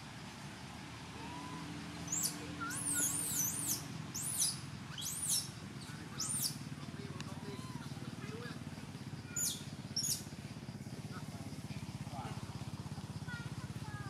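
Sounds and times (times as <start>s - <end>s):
whistled animal calls: 1.2s - 6.6s, 9.3s - 10.3s.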